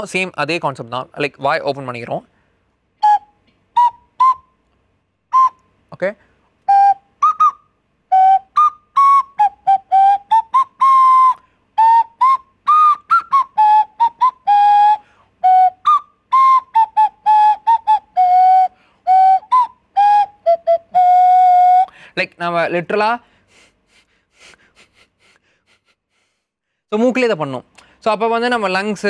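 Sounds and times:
nose flute whistling tune: 0:03.0 - 0:04.6, 0:05.3 - 0:05.7, 0:06.6 - 0:22.0.

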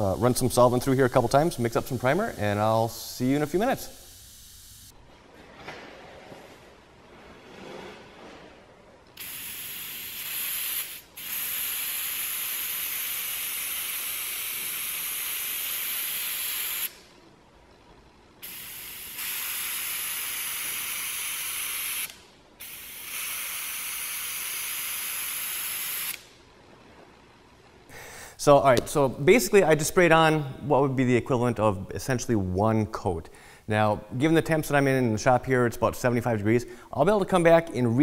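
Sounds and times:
airbrush spraying hiss: 0:03.5 - 0:04.9, 0:09.2 - 0:16.9, 0:18.4 - 0:26.2.

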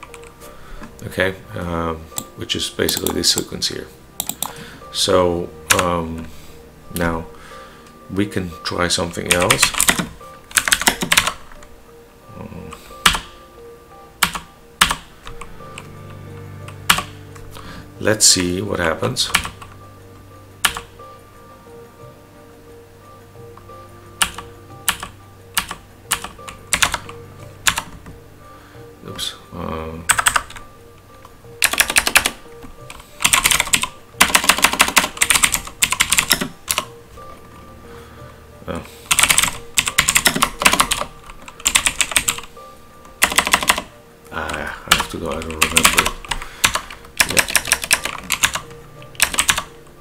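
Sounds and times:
typing on computer keyboard: 0:04.2 - 0:04.6, 0:09.3 - 0:11.4, 0:14.2 - 0:15.4, 0:24.2 - 0:27.1, 0:30.1 - 0:30.6, 0:31.6 - 0:36.9, 0:39.1 - 0:42.5, 0:43.2 - 0:49.7
keyboard keystrokes: 0:31.6 - 0:36.9, 0:44.9 - 0:49.7.

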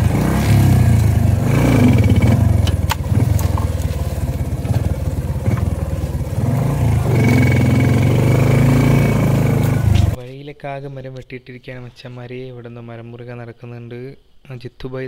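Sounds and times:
motorcycle engine running: 0:00.0 - 0:10.2
motorcycle knocks and rattles: 0:00.0 - 0:10.2.

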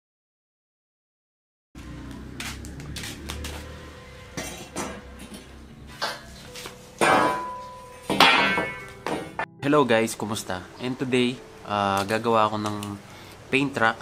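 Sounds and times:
steel pipes clanking on concrete: 0:04.4 - 0:06.4, 0:07.0 - 0:09.5
pipe ringing: 0:07.0 - 0:12.6.

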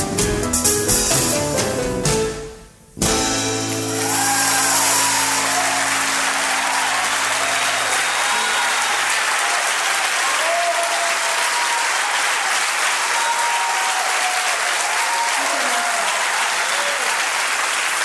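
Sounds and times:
band holding a chord: 0:03.0 - 0:09.1
audience applauding: 0:03.6 - 0:18.0
audience cheering: 0:03.6 - 0:18.0.

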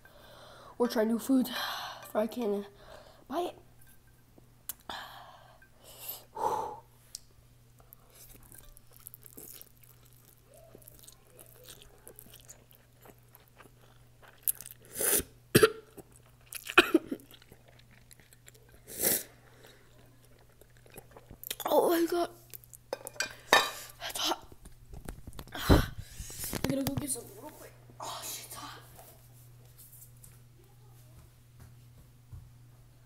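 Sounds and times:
person chewing: 0:07.1 - 0:21.6
loud noodle slurps: 0:14.8 - 0:15.3, 0:18.8 - 0:19.4.

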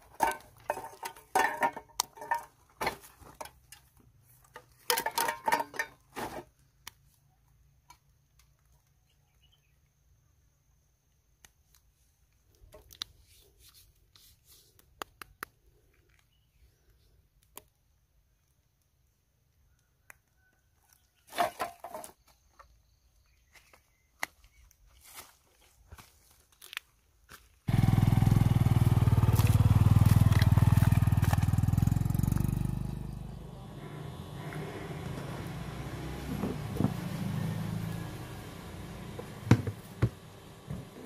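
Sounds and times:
debris clattering and clinking: 0:00.0 - 0:03.8, 0:04.5 - 0:06.4.

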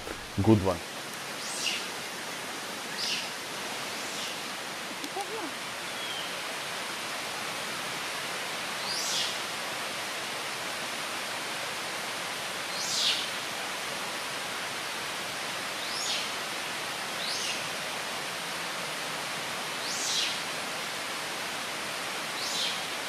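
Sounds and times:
outdoor hiss: 0:00.0 - 0:23.0.

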